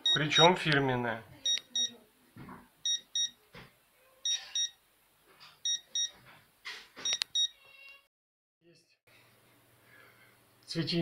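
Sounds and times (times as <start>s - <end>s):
short high alarm beeps: 1.4s - 1.9s, 2.8s - 3.4s, 4.3s - 4.8s, 5.6s - 6.1s, 7.0s - 7.6s.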